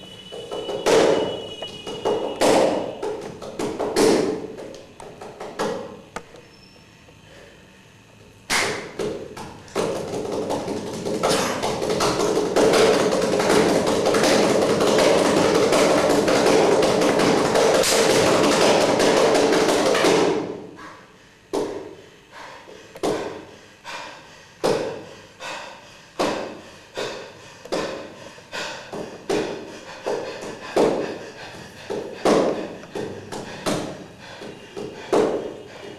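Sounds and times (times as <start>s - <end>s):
percussive thuds and taps: 0.4s - 6.0s, 8.5s - 20.6s, 21.5s - 21.9s, 23.0s - 23.4s, 24.6s - 25.0s, 26.2s - 28.1s, 28.9s - 35.5s
rapid strikes: 8.5s - 20.6s.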